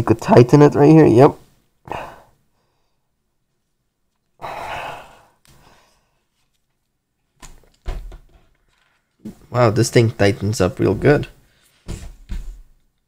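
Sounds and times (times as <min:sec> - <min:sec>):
person sighing through face mask: 0:01.9 - 0:02.4, 0:04.4 - 0:06.0.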